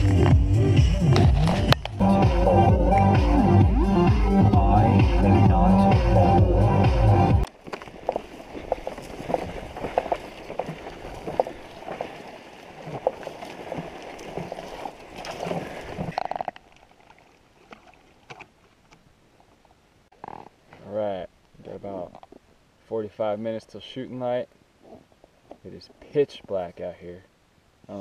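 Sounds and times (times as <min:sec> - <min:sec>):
footsteps through dry grass: 0:07.5 - 0:15.2.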